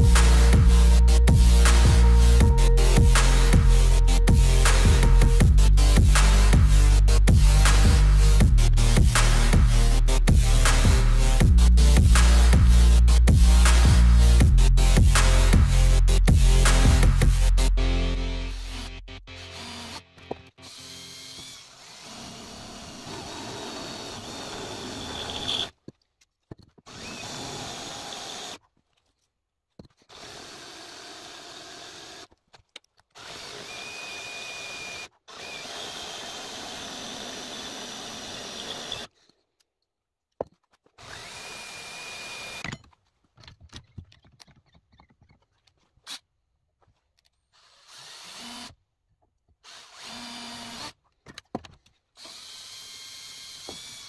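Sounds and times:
cordless drill boring into metal: 19.4s - 25.8s, 26.9s - 28.6s, 30.1s - 32.4s, 33.2s - 39.1s, 41.0s - 42.8s, 47.6s - 48.8s, 49.6s - 51.0s, 52.2s - 54.0s
drill bit squealing: 20.7s - 25.8s, 33.2s - 39.1s.

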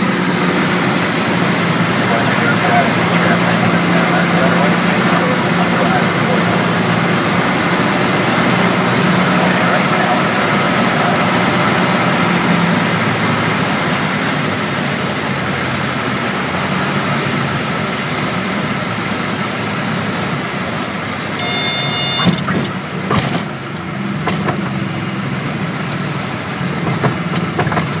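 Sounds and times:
light aircraft engine and propeller: 0.0s - 28.0s
stall warning horn buzzing: 21.4s - 22.6s.

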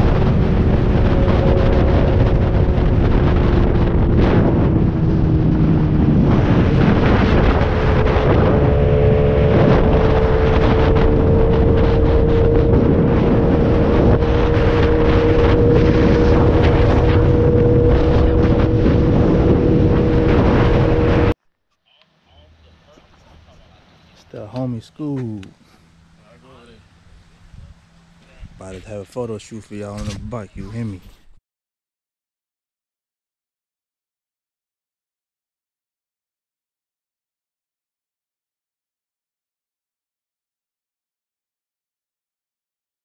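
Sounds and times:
motorcycle engine cruising: 0.0s - 21.4s
wind rush on microphone: 0.0s - 21.4s, 27.4s - 29.0s.

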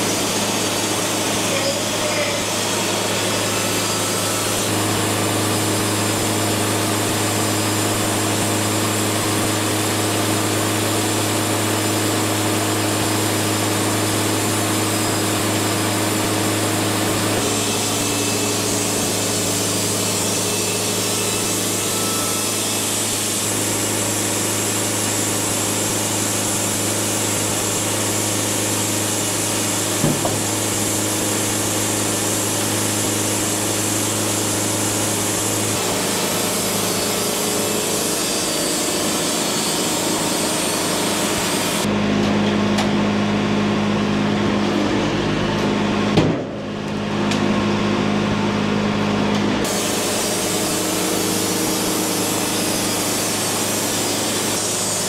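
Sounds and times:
band sawmill cutting log: 0.0s - 55.0s
knock: 30.0s - 30.4s.

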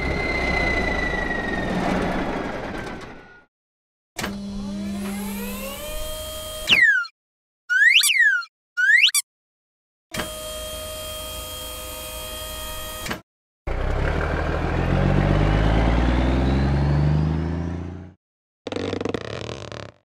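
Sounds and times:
truck engine revving: 0.0s - 3.2s, 13.7s - 18.2s.

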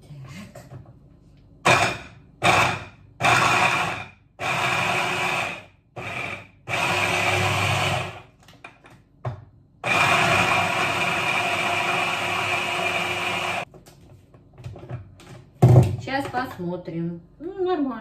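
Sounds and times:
hand blender grinding: 1.7s - 8.2s, 9.8s - 13.7s.

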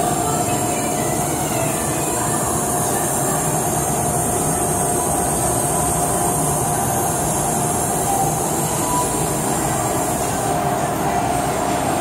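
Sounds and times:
punch press machine whine: 0.0s - 12.0s.

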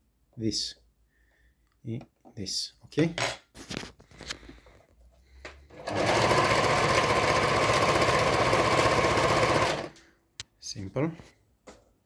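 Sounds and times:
sewing machine sewing: 5.7s - 10.0s.

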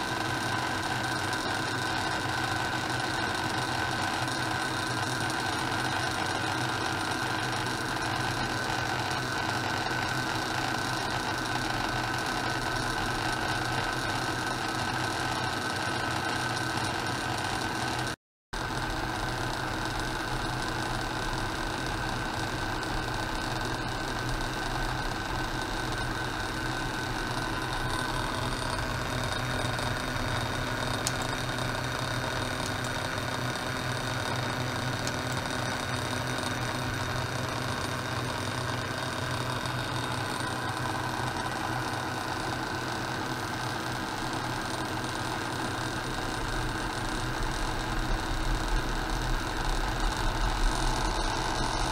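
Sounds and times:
low electrical hum: 44.1s - 51.9s.

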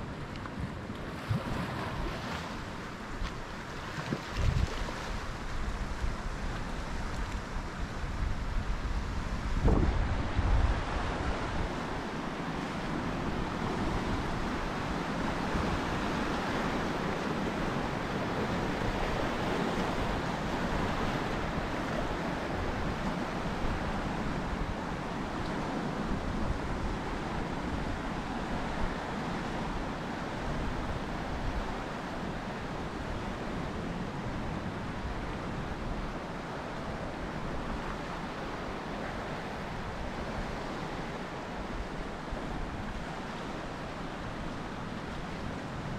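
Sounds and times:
wind buffeting microphone: 0.5s - 12.3s.

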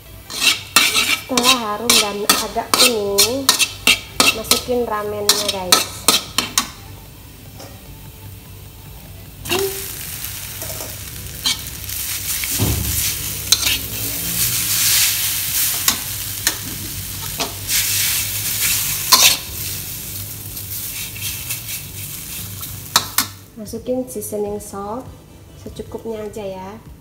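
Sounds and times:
spatula scraping wok: 0.0s - 6.8s, 9.4s - 23.4s
noodles sizzling in oil: 0.0s - 23.6s.

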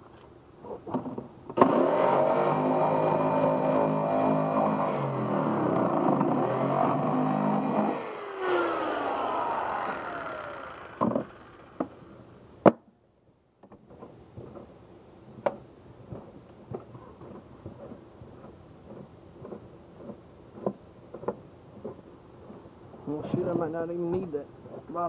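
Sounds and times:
electric jigsaw cutting plastic: 1.6s - 12.1s.

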